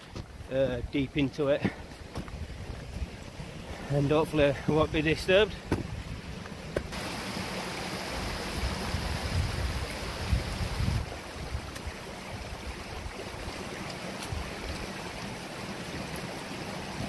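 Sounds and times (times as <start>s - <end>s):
stream trickling over stones: 0.0s - 17.0s
wind rumble on microphone: 2.0s - 3.9s, 8.3s - 13.6s.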